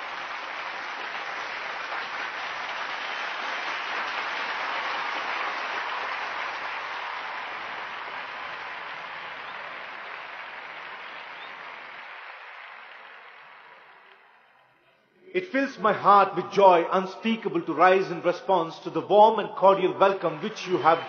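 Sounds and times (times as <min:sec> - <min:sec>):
large audience applauding: 0:00.0 - 0:14.6, 0:20.0 - 0:21.0.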